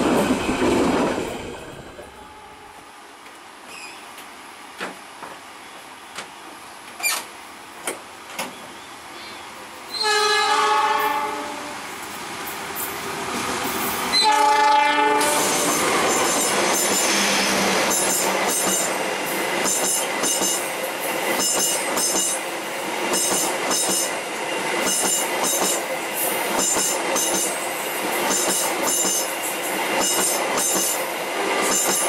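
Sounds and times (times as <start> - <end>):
train horn blast: 9.9 - 11.8, 14.1 - 15.7
train wheels clickety-clack: 15.2 - 32.0.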